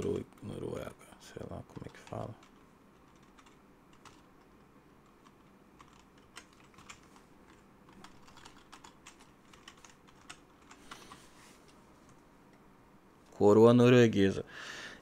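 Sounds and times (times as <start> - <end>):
typing on keyboard: 1.7 - 4.3, 5.1 - 11.1.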